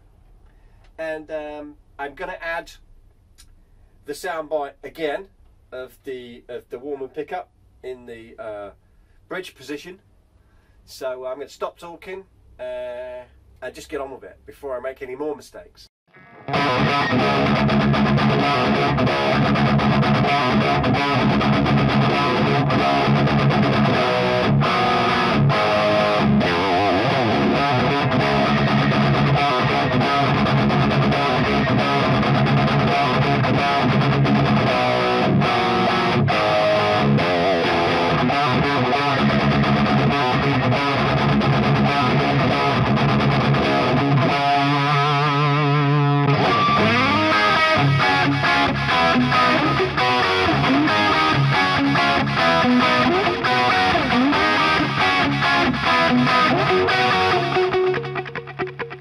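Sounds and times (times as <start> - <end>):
distorted electric guitar riffs: 16.1 - 59.0.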